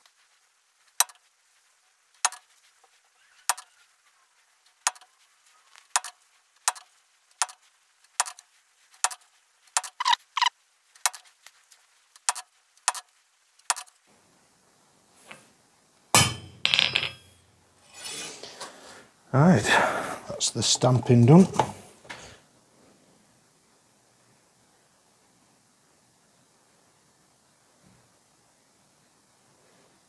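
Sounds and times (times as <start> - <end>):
hammer striking metal stamp: 16.2 - 17.2.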